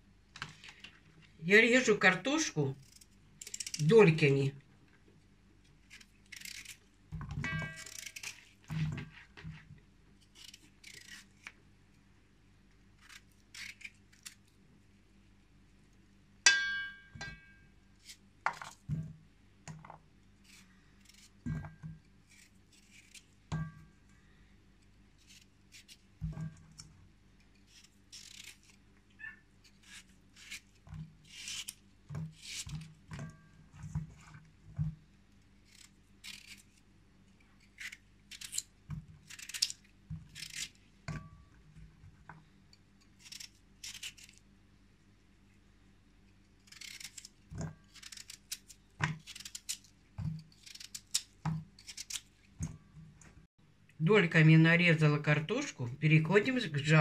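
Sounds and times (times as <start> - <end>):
knife slicing raw potatoes: 10.3 - 11.6, 13.0 - 14.4, 20.4 - 23.7, 27.5 - 35.0, 35.6 - 36.8, 37.6 - 41.3, 43.0 - 44.4, 46.6 - 52.8.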